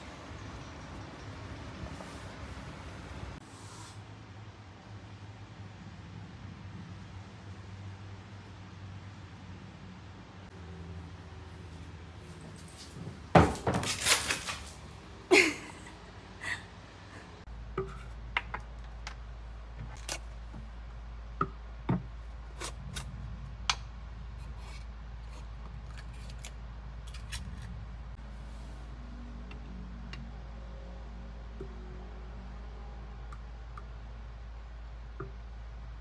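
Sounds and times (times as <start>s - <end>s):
low steady hum: 14.8s - 36.0s.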